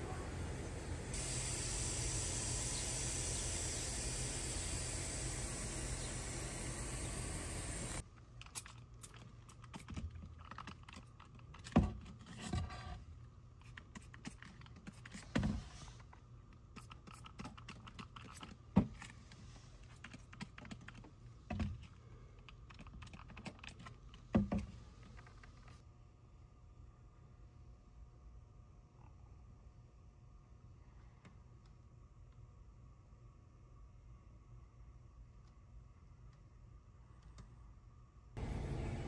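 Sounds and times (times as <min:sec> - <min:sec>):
steady outdoor hiss: 0:00.0 - 0:08.0, 0:38.4 - 0:39.0
spray bottle click and spritz: 0:01.2 - 0:08.0.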